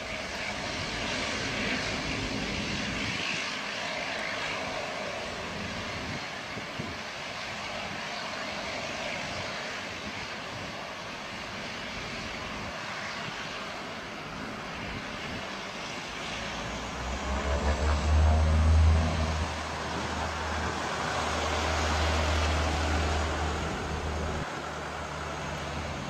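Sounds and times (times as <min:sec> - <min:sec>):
turboprop engine and propeller noise: 0:00.0 - 0:26.0
deep pulsing drone: 0:16.4 - 0:26.0.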